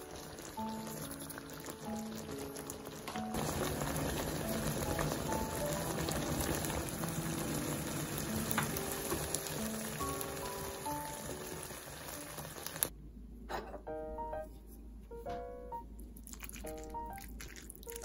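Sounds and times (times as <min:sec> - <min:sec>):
light background music: 0:00.0 - 0:12.9, 0:13.8 - 0:18.0
sauce bubbling in a pan: 0:00.0 - 0:12.9, 0:16.3 - 0:18.0.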